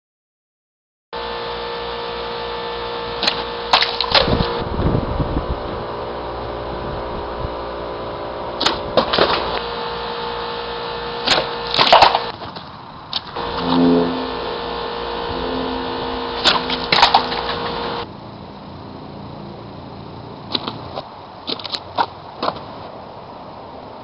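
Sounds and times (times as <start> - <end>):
steady hum: 1.2 - 21.4
sword cutting plastic bottles: 11.2 - 12.3.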